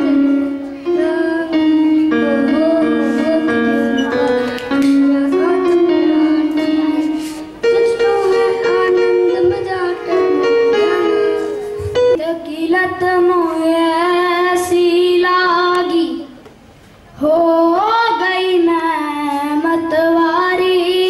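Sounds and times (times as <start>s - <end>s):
electronic keyboard melody: 0.0s - 12.3s
child singing into microphone: 0.0s - 21.0s.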